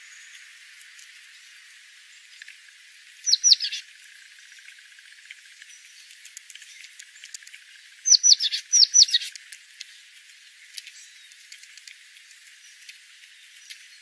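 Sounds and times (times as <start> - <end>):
bird chirping: 3.2 - 4.7, 5.6 - 11.5.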